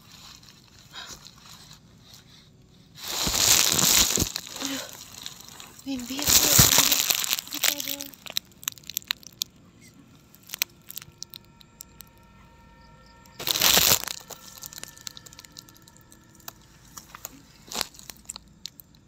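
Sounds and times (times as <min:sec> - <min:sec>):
tent fabric rustling and crackling: 0:00.0 - 0:09.4, 0:13.4 - 0:18.8.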